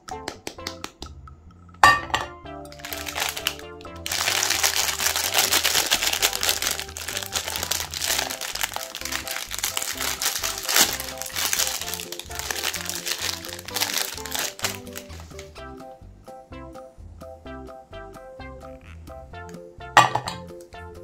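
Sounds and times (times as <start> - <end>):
background music simple melody: 0.0 - 21.0
plastic wrapper crinkling: 2.7 - 15.5
sharp plastic crackle: 2.7 - 15.5.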